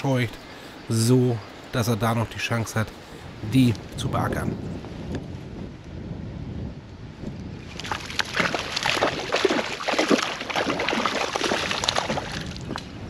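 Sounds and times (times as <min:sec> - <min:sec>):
fish splashing in water: 0:07.7 - 0:12.9.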